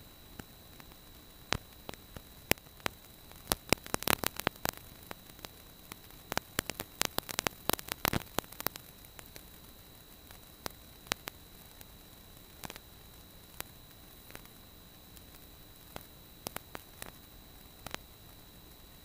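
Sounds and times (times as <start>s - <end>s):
faint steady hiss: 0.0s - 19.0s
sharp clicks and crackles: 0.0s - 19.0s
thin high whine: 0.0s - 19.0s.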